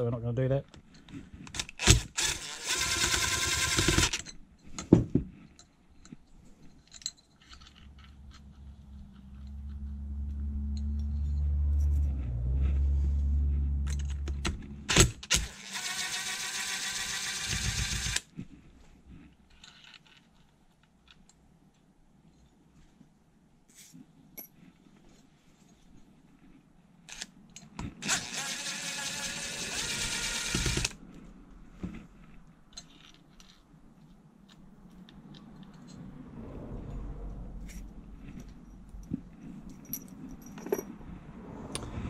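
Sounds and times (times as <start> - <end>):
low rumble: 8.1 - 14.8.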